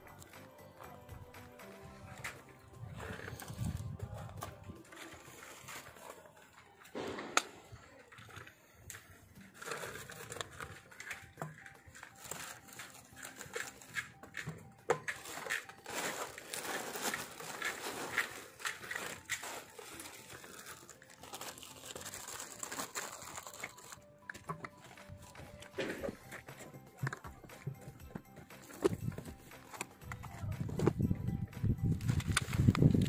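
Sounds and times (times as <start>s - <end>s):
plastic crinkling and rustling: 7.8s - 26.4s.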